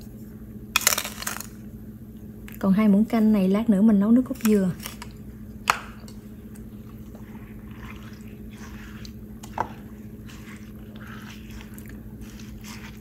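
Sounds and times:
wet squishing and scraping: 0:06.0 - 0:13.0.

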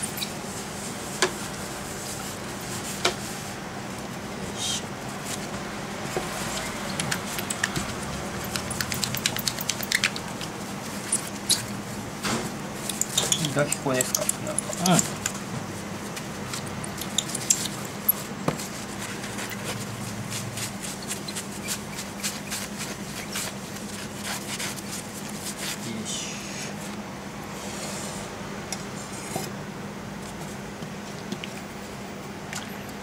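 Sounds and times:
tissue rubbing a plate: 0:00.5 - 0:03.6, 0:18.1 - 0:25.9.

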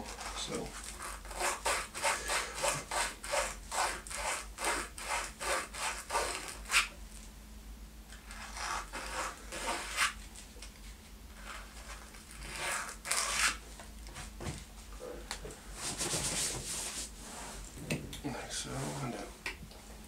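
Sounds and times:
sandpaper scraping wood finish: 0:00.0 - 0:06.9, 0:08.2 - 0:10.2, 0:11.4 - 0:13.6, 0:15.8 - 0:17.7.

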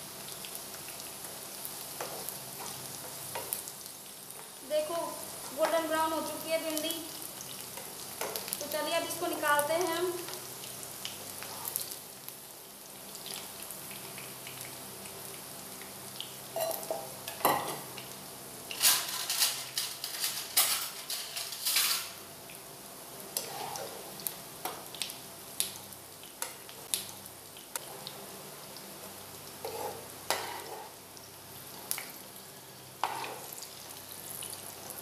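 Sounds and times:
okra sizzling in hot oil: 0:00.0 - 0:35.0.

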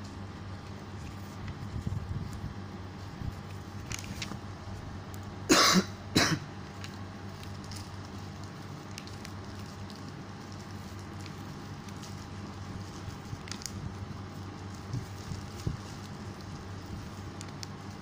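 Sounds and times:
steady low hum: 0:00.0 - 0:18.0
paper creasing ticks: 0:03.2 - 0:04.4, 0:06.6 - 0:18.0
person coughing: 0:05.5 - 0:06.5.

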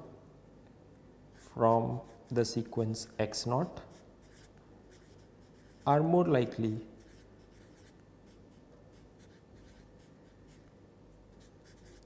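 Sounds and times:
pen scratching on paper: 0:01.3 - 0:02.5, 0:03.9 - 0:05.9, 0:07.0 - 0:10.6, 0:11.3 - 0:12.0.

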